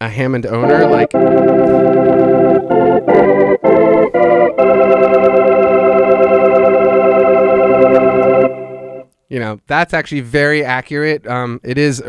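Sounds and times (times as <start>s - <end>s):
organ chords: 0.6s - 9.1s.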